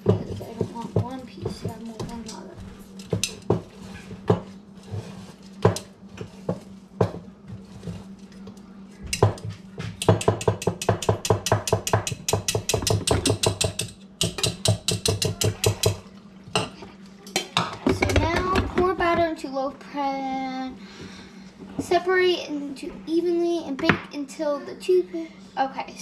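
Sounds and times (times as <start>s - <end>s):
whisk clacking against bowl: 10.0s - 16.0s.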